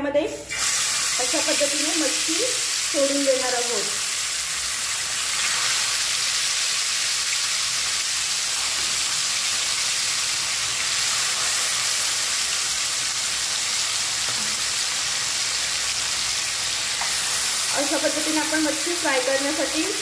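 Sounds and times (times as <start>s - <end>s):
fish sizzling in hot oil: 0.5s - 20.0s.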